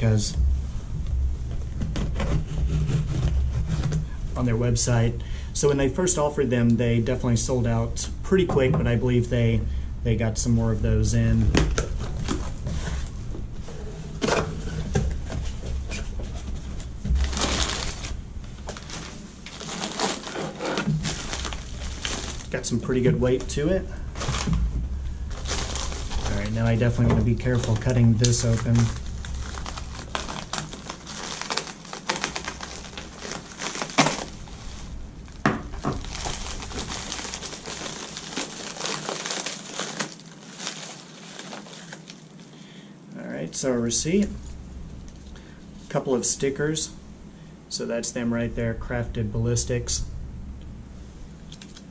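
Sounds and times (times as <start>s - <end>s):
tissue paper rustling: 15.2s - 23.4s, 24.0s - 42.5s.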